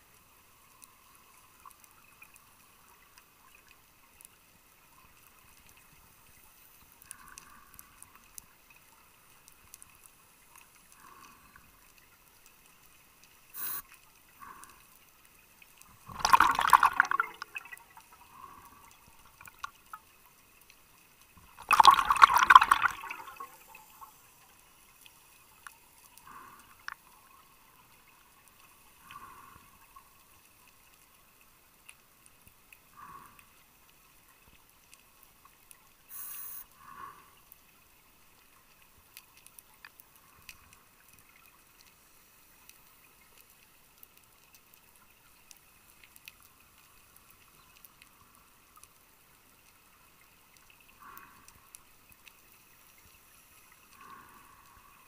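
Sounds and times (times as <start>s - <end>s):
faint ticks: 0.0s - 16.1s, 17.3s - 21.6s, 23.2s - 55.0s
regulator hiss: 13.6s - 13.8s, 36.1s - 36.7s
underwater regulator bubbling: 16.0s - 19.7s, 21.5s - 24.1s.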